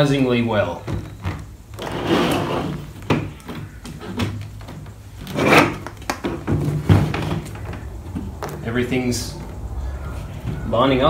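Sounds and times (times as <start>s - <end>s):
plastic sheet rubbing and scraping: 1.7s - 10.8s
plastic parts knocking: 2.8s - 8.6s.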